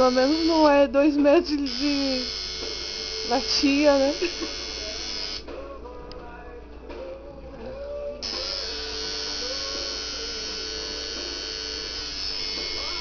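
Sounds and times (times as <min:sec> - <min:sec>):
tattoo machine buzzing: 0:00.0 - 0:05.5, 0:08.2 - 0:13.0.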